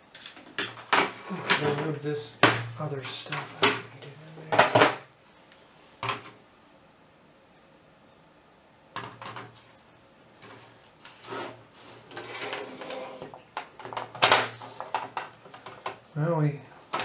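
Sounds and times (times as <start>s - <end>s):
plastic parts rubbing and scraping: 10.4s - 15.9s.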